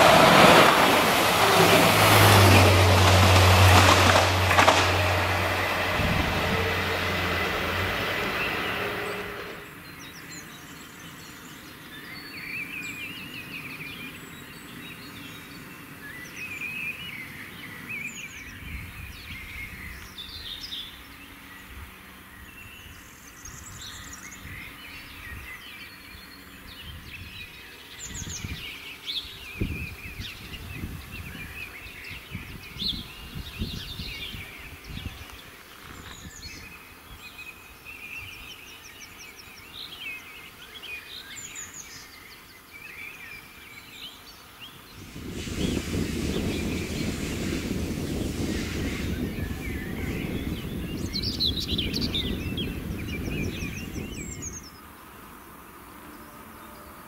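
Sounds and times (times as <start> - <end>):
low rumbling: 0.0 - 9.9
songbirds chirping and trilling: 0.0 - 57.0.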